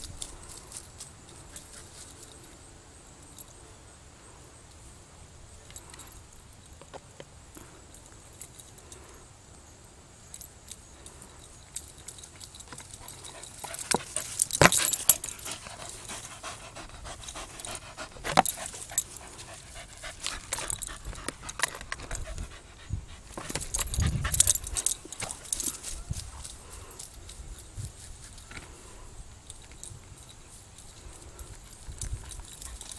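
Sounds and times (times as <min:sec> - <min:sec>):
handling noise: 0:11.1 - 0:22.6, 0:23.2 - 0:27.2
dog panting: 0:12.2 - 0:25.6.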